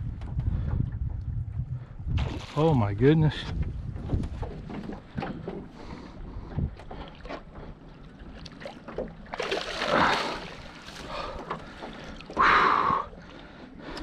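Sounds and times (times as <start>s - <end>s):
water splashing: 2.2s - 2.8s, 7.0s - 13.9s
rush of water: 9.3s - 13.4s.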